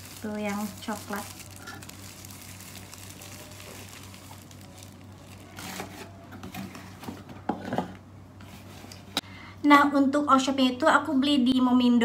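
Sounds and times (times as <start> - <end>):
plastic wrapping crinkling: 0.0 - 6.8.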